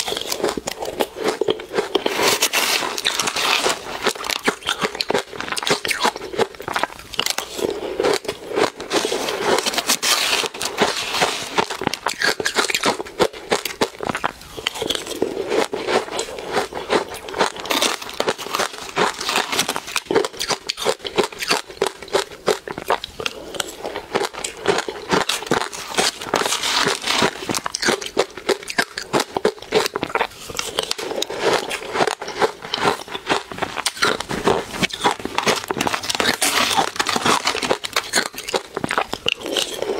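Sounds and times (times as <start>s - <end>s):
ice crunching while chewed: 0.0s - 39.9s.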